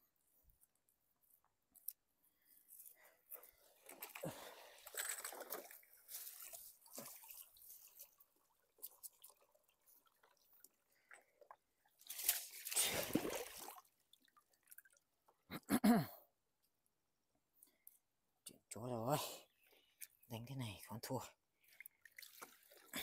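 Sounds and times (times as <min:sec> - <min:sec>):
wet net rustling: 0:02.7 - 0:10.1, 0:12.0 - 0:13.8
water dripping and splashing: 0:03.8 - 0:15.1, 0:21.6 - 0:23.0.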